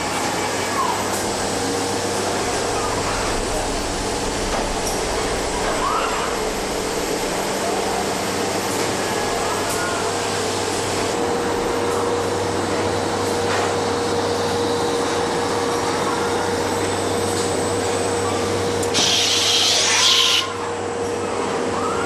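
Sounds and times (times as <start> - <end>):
machine hum: 0.0 - 20.6
loud air hiss: 19.0 - 20.4.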